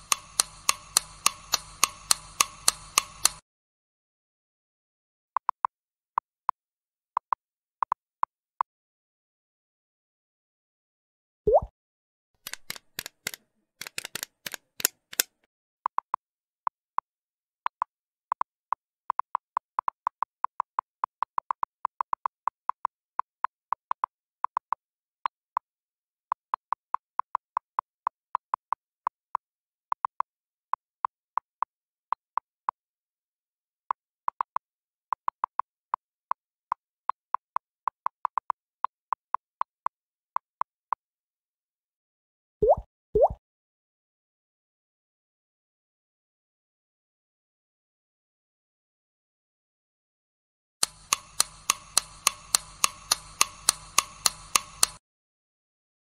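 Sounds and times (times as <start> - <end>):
quick sharp clicks: 0.0 - 3.4, 12.4 - 15.5, 50.8 - 55.0.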